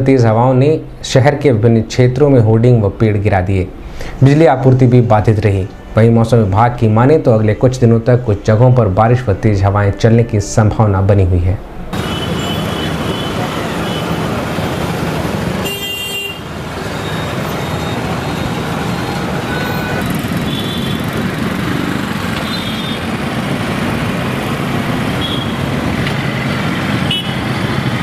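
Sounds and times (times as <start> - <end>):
passing road vehicles: 11.6 - 28.0.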